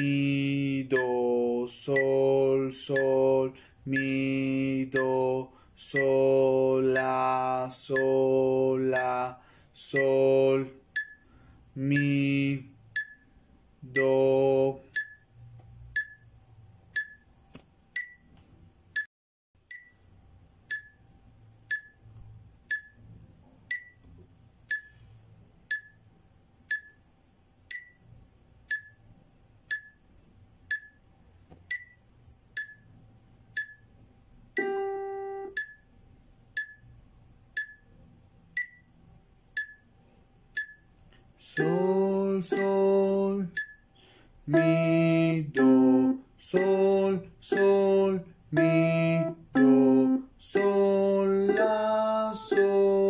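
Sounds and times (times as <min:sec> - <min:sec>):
metronome ticking: 0:00.0 - 0:16.3, 0:17.0 - 0:17.3, 0:18.0 - 0:18.3, 0:19.0 - 0:20.0, 0:20.6 - 0:21.0, 0:21.6 - 0:27.1, 0:27.7 - 0:31.1, 0:31.7 - 0:34.0, 0:34.6 - 0:35.9, 0:36.5 - 0:38.9, 0:39.5 - 0:43.9, 0:44.5 - 0:53.0.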